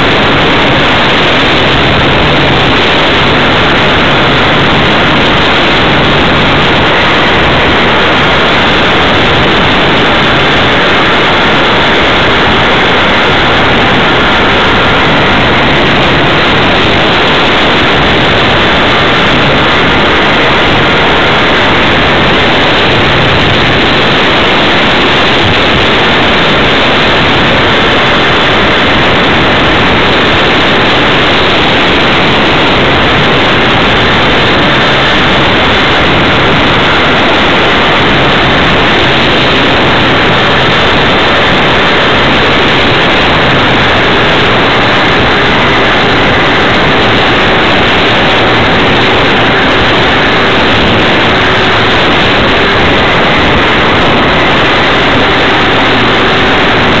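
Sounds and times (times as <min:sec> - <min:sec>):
airflow and propeller noise: 0:00.0 - 0:57.0.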